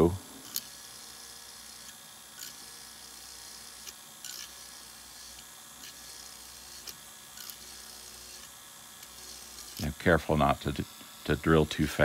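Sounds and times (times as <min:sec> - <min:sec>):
rotary tool whirring: 0:00.0 - 0:12.0
drill bit ticking on plastic: 0:00.5 - 0:09.9.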